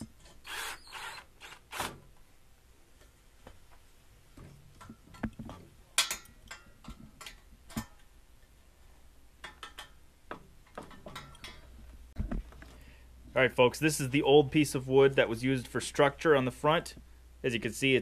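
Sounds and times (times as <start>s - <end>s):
hand tools clicking and knocking: 4.4s - 8.1s, 9.4s - 11.8s.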